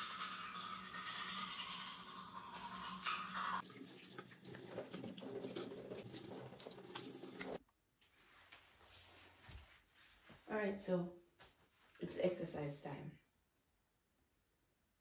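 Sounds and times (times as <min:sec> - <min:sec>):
faucet running into a sink: 0:00.0 - 0:07.6
toothbrush scrubbing: 0:00.0 - 0:07.6.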